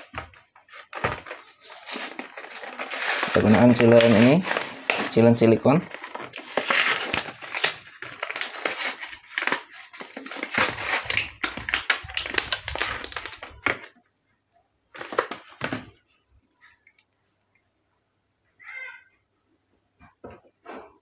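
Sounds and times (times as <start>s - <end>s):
packaging crinkling and crumpling: 0.0s - 14.0s, 14.9s - 15.9s.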